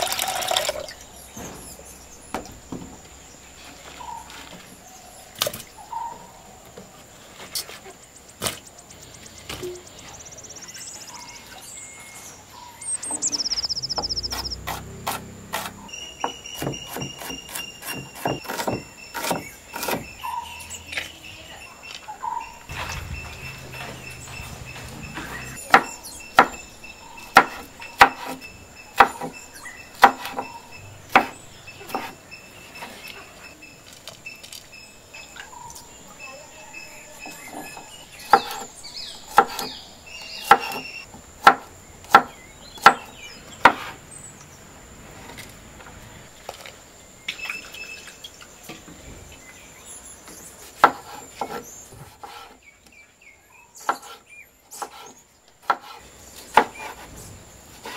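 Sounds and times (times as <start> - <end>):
insects trilling: 0.0 - 52.6
knife chopping on wooden board: 14.3 - 15.8, 16.6 - 20.1, 25.7 - 26.6, 27.3 - 28.4, 29.0 - 29.3, 30.0 - 30.5, 31.1 - 32.2, 40.4 - 44.0, 50.8 - 52.6, 53.8 - 57.1.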